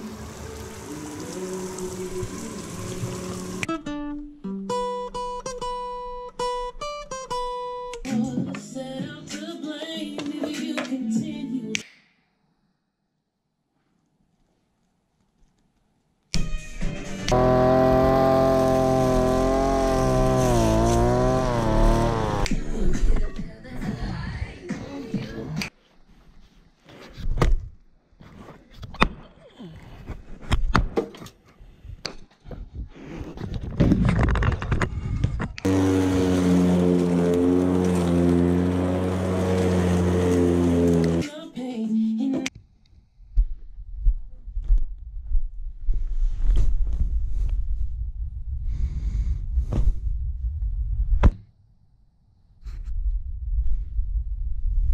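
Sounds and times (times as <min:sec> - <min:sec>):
finger snap: 0:11.7 - 0:12.2
axe splitting firewood: 0:17.3 - 0:22.5, 0:39.5 - 0:41.2
rumbling handling noise: 0:33.5 - 0:41.2.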